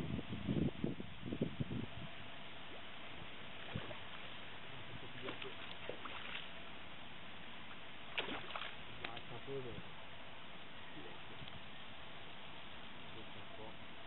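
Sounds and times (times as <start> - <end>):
fish splashing at water surface: 5.2 - 6.5, 8.1 - 9.3.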